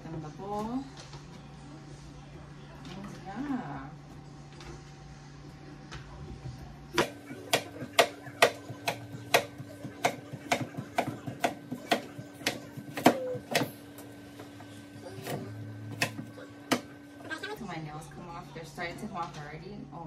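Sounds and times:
knife chopping on cutting board: 7.0s - 13.8s, 15.2s - 16.9s.

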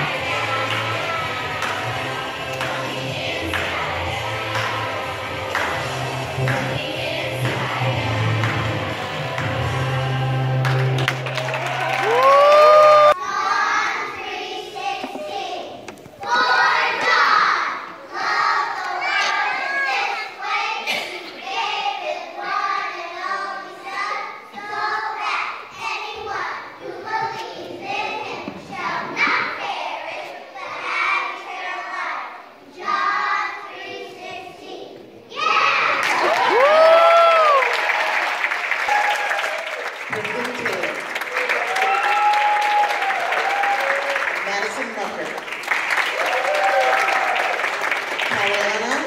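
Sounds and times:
children singing: 0.0s - 10.6s, 13.2s - 36.1s
children's voices and cheering: 11.4s - 21.4s, 34.6s - 39.8s, 41.2s - 44.3s, 46.0s - 47.9s.

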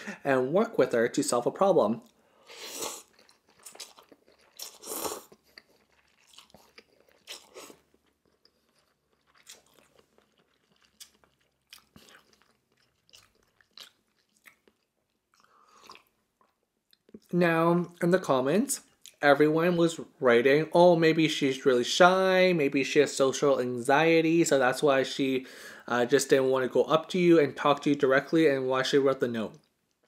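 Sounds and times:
chewing with wet mouth clicks: 3.1s - 17.3s.

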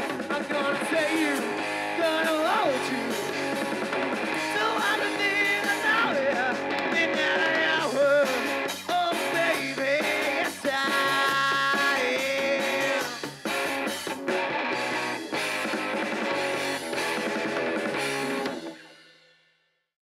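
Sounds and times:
person singing: 0.0s - 13.6s
bass guitar: 0.0s - 18.8s
electric guitar: 0.0s - 19.0s
drum kit: 0.0s - 19.2s.

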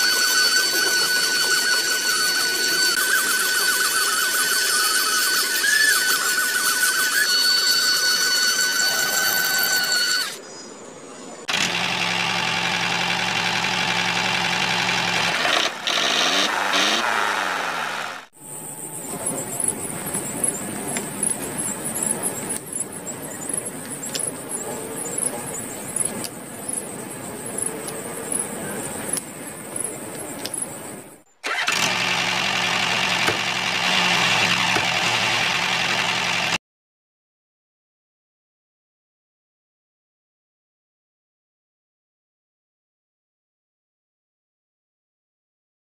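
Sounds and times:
motor running: 0.0s - 10.4s, 11.5s - 36.6s.

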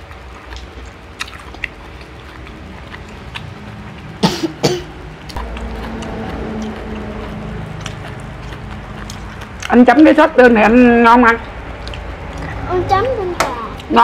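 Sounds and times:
people chewing: 0.0s - 14.0s
person coughing: 4.2s - 4.9s.

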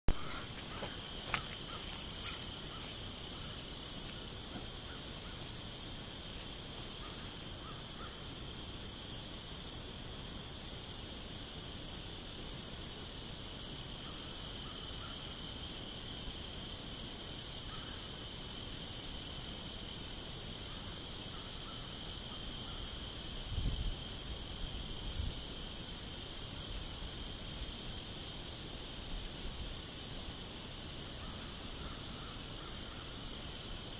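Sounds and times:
short insect chirps: 0.1s - 8.4s
crickets trilling: 0.1s - 33.9s
insects buzzing: 0.1s - 33.9s.

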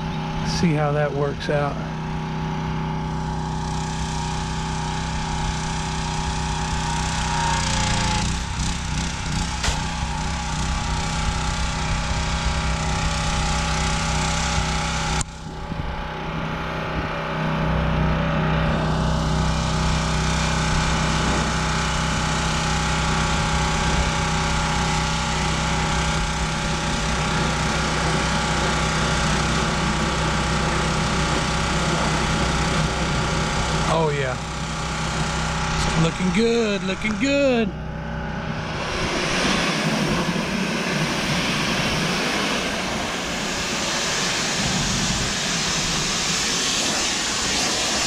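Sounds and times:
pressure washer engine running: 0.0s - 48.0s
water jet hissing on siding: 41.4s - 48.0s.

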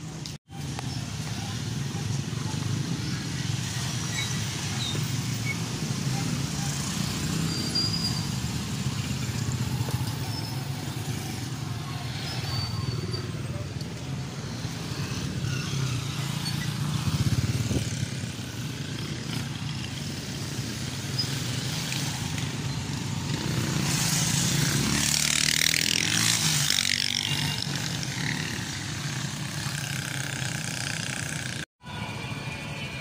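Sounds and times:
traffic engines running: 0.0s - 33.0s.

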